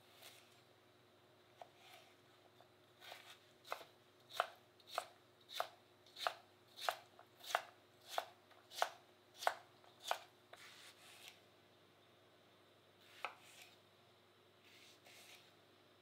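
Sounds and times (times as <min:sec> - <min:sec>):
knife chopping on cutting board: 0:03.0 - 0:11.3, 0:13.1 - 0:13.7, 0:14.7 - 0:15.5.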